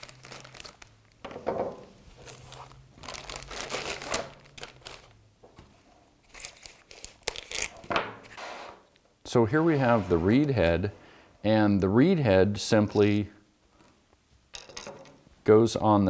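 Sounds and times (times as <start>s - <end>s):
plastic bag crinkling: 0.0s - 1.2s, 2.1s - 5.2s.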